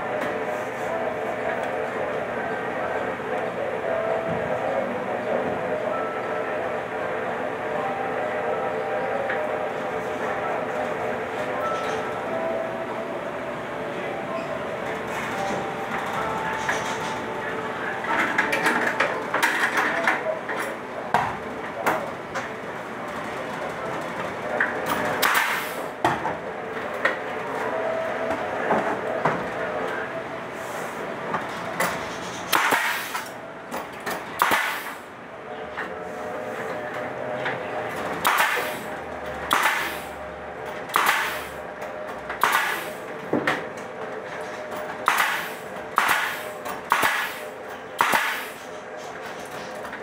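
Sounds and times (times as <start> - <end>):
pneumatic nail gun shots: 25.2 - 25.8, 32.5 - 33.3, 34.4 - 35.0, 38.2 - 38.8, 39.5 - 40.1, 40.9 - 41.5, 42.4 - 43.0, 45.0 - 47.4, 48.0 - 48.6.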